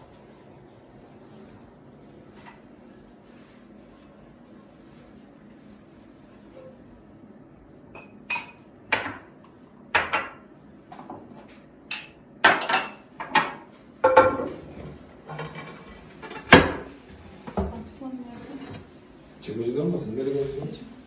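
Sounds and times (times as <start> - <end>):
dishes and utensils clinking: 7.9 - 9.2, 11.9 - 16.9.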